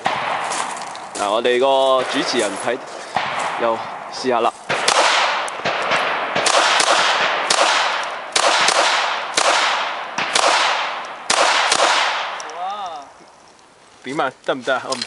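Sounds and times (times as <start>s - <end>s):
pistol shots with echo: 0.0s - 0.8s, 1.8s - 12.4s.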